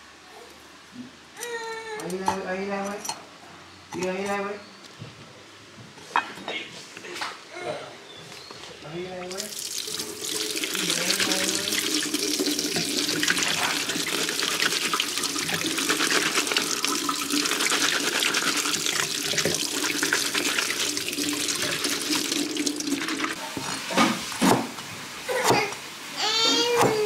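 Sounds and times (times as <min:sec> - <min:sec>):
tap water splashing into sink: 0:09.3 - 0:23.4
knife chopping on wooden board: 0:24.0 - 0:24.8.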